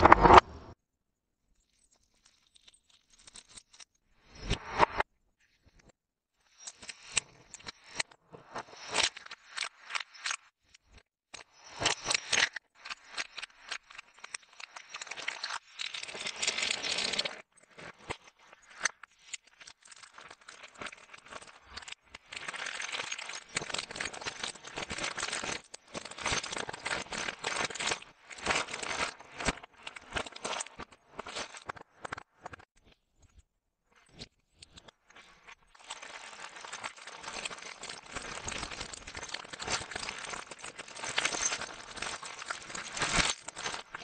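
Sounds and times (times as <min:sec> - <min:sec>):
wrappers crinkling: 0:35.8 - 0:44.0.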